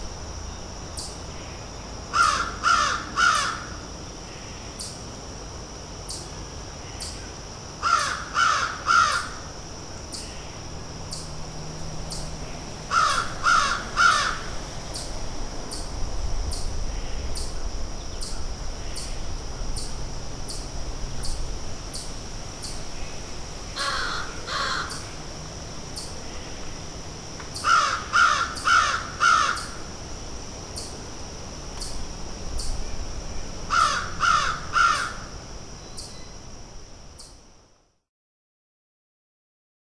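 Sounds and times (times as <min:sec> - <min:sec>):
crows cawing: 0:02.1 - 0:03.8, 0:07.8 - 0:09.4, 0:12.9 - 0:14.5, 0:23.8 - 0:25.0, 0:27.6 - 0:29.8, 0:33.7 - 0:35.3.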